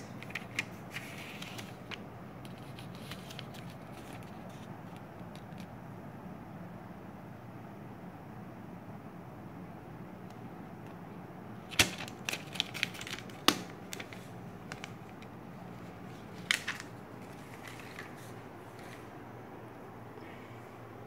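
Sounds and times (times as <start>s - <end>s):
receipt paper crackling: 0.0s - 5.7s, 11.6s - 19.2s.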